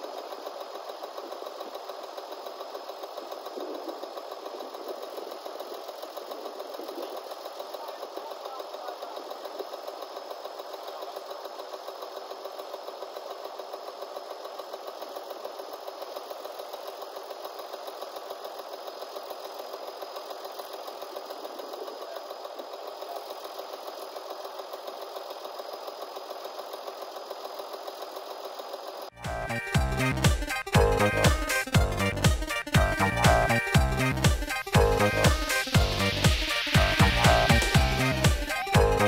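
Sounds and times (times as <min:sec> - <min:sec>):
tractor diesel engine idling: 0:00.0 - 0:39.0
music: 0:29.2 - 0:39.0.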